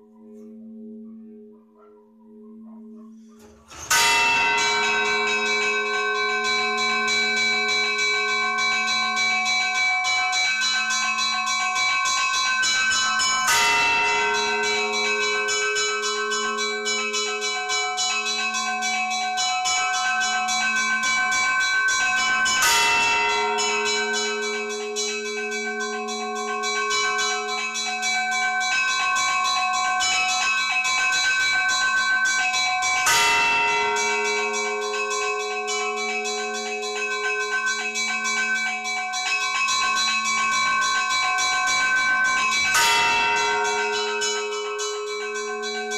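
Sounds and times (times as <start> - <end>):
peal of smaller bells: 0.0 - 45.9
large bell tolling: 2.3 - 28.0, 32.5 - 45.9.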